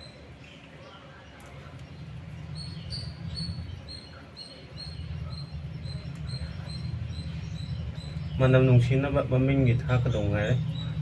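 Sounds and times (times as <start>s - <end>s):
small bird chirping: 0.0s - 11.0s
low rumble: 4.7s - 11.0s.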